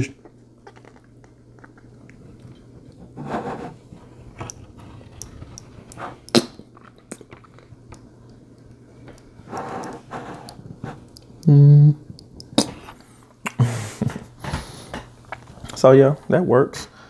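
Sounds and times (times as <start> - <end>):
low steady hum: 0.0 - 17.0
lip smacks and pops: 5.6 - 9.3
puff of breath: 13.6 - 15.1.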